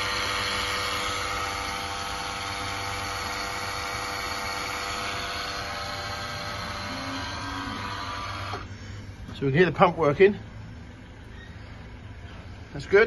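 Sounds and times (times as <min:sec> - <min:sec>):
electric fuel pump humming: 0:00.0 - 0:09.3.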